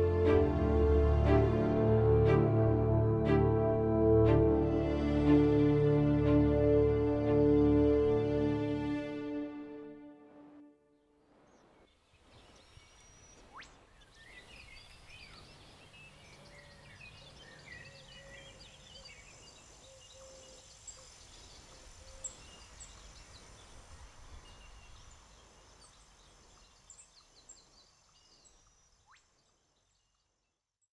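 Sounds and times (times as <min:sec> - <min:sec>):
birds chirping: 0:12.4 - 0:29.9.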